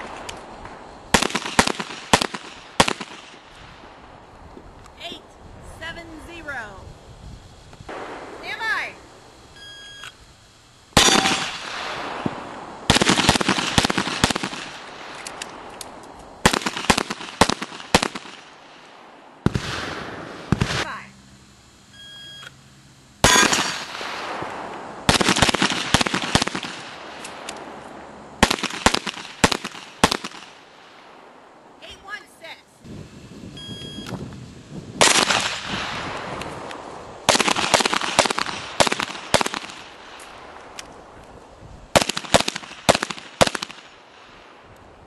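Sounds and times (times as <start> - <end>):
shot timer beep: 9.6 - 10.2, 21.9 - 22.5, 33.6 - 34.2
handgun shots: 11.0 - 11.7, 23.2 - 24.0.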